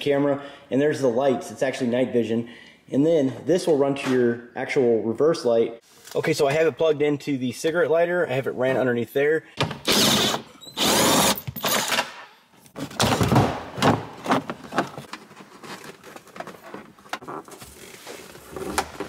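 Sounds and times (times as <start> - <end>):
plastic trim scraping and rustling: 13.9 - 19.0.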